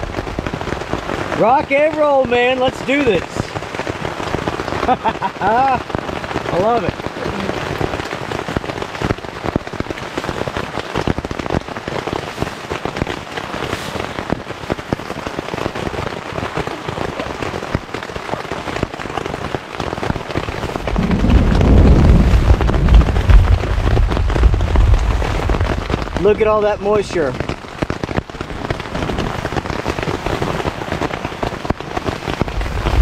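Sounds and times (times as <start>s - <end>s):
thunder rumbling: 0.0s - 1.7s, 20.3s - 30.6s, 31.5s - 33.0s
heavy rain on tent fabric: 0.0s - 33.0s.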